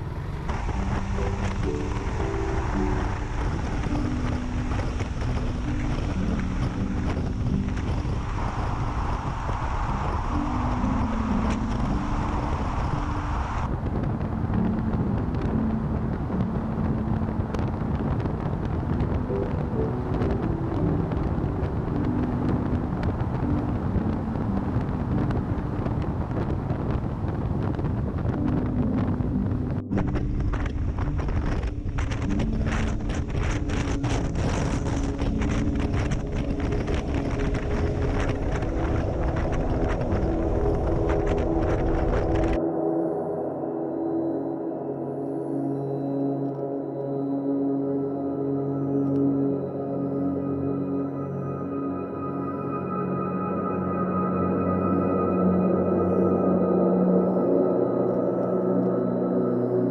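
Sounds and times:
wind rushing on microphone: 0:00.0 - 0:59.9.

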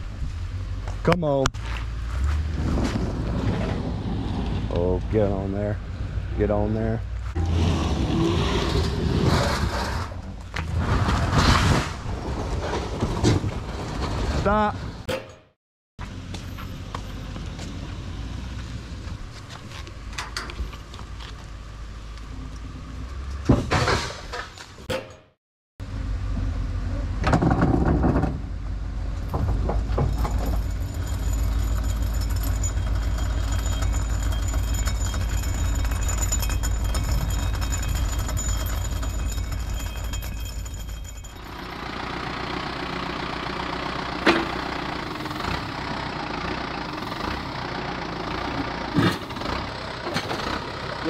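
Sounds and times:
clatter: 0:27.2 - 0:28.5, 0:29.2 - 0:51.0
trailer rattle: 0:27.3 - 0:51.0
vehicle engine pulsing steadily: 0:28.2 - 0:51.0
truck engine running: 0:28.4 - 0:51.0.

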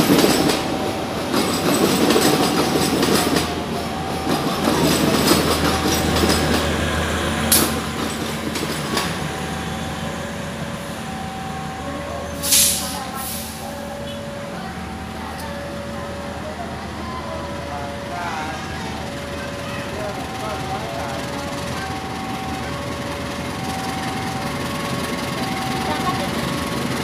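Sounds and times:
train wheels clattering on track: 0:00.0 - 0:10.4.

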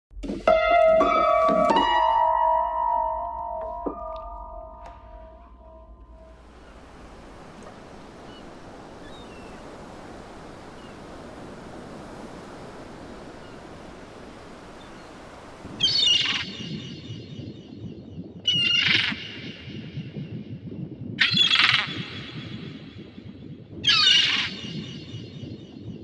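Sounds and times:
wind: 0:03.8 - 0:26.0
sea waves: 0:04.9 - 0:17.4
gulls calling loudly: 0:06.4 - 0:17.4, 0:23.8 - 0:25.3.

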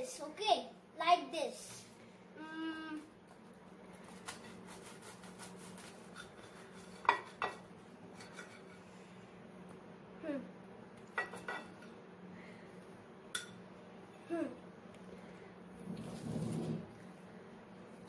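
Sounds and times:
steady low hum: 0:00.0 - 0:18.0
knife scraping toasted bread: 0:04.0 - 0:07.5.

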